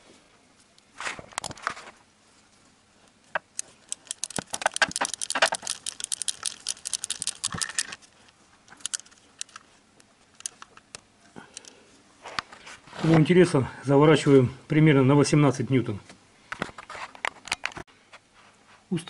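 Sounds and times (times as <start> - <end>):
metallic tool taps and rattles: 3.4 - 8.0
socket ratchet clicking: 3.4 - 8.0, 8.8 - 9.6, 10.4 - 11.0.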